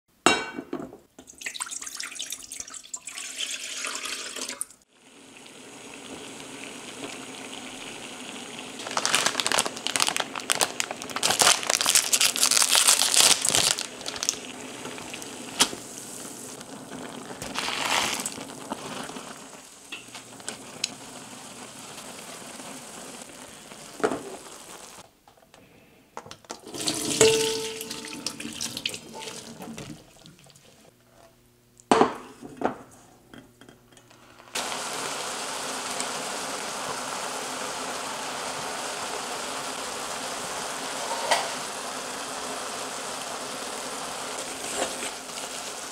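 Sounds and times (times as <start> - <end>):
water boiling in a wok: 1.2 - 25.1, 26.6 - 31.0, 33.4 - 45.9
noodles crackling and clattering: 8.8 - 21.1
water rushing through metal strainer: 17.2 - 19.5, 26.6 - 30.9.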